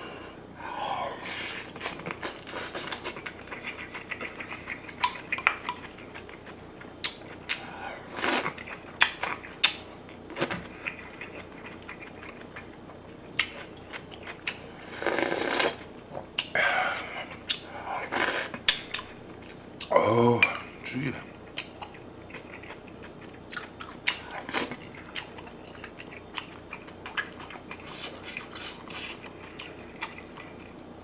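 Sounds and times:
person slurping broth: 14.9 - 15.8, 18.0 - 18.6.

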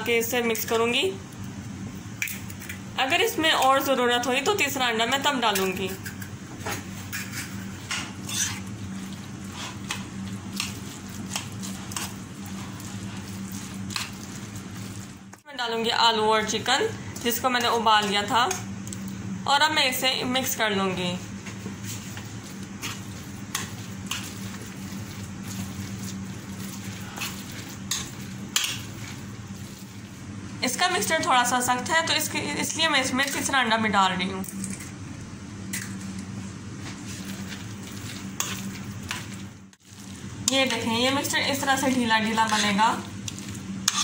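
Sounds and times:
steady low hum: 0.0 - 44.0
wet squishing of stirred food: 6.8 - 15.5, 21.4 - 30.4, 36.4 - 44.0
spoon strokes in a bowl: 7.0 - 15.2.

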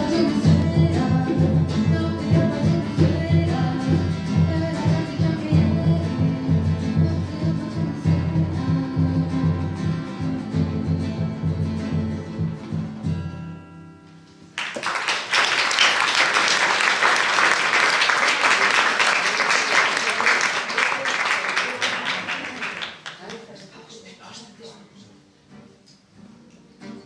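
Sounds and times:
live acoustic song: 0.0 - 27.0
large standing drum: 0.3 - 13.3
audience applauding: 14.6 - 23.8.

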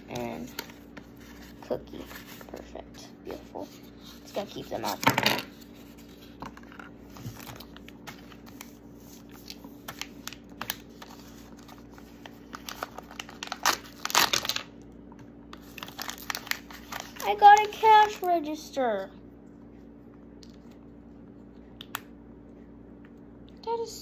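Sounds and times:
wrapper crinkling: 7.3 - 14.8, 15.6 - 18.3.

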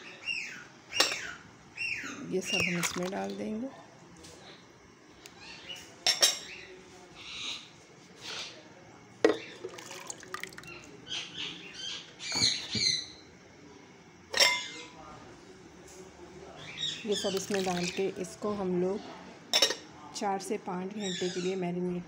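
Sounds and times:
wet paste slopping: 2.5 - 3.4
glass jar clinking against bowl: 14.3 - 14.7.

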